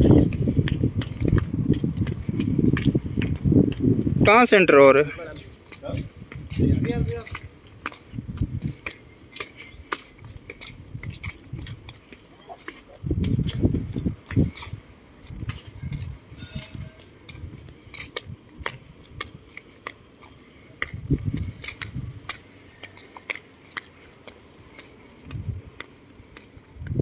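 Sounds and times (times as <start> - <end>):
dull low thumps: 0.0 - 4.3, 6.0 - 8.8, 13.0 - 19.4, 20.8 - 22.3
sandal footsteps on paving stones: 0.0 - 27.0.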